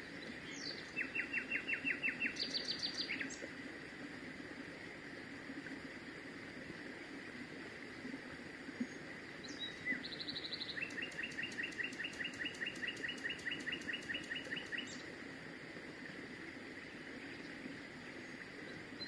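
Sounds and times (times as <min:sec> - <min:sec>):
nightingale singing: 0:00.5 - 0:03.3, 0:09.5 - 0:15.0.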